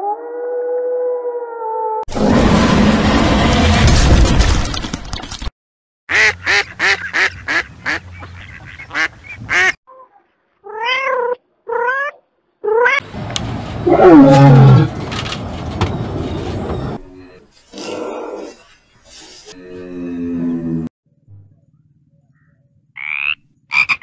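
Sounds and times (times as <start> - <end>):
animal roar: 13.8 - 15.0
lion roaring: 13.8 - 15.0.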